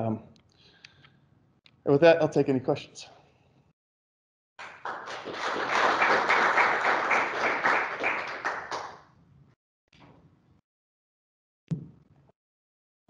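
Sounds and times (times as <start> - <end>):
audience applauding: 4.6 - 9.0.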